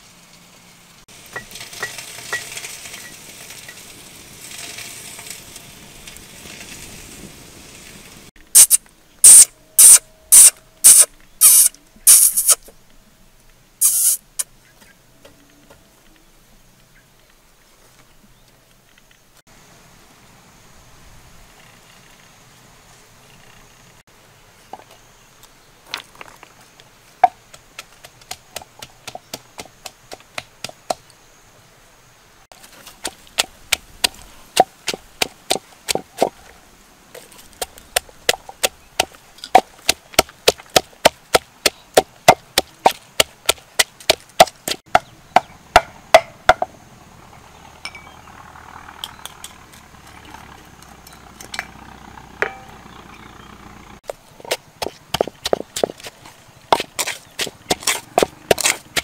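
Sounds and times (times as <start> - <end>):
pestle pounding in mortar: 37.9 - 46.7, 54.4 - 56.1, 56.8 - 59.0.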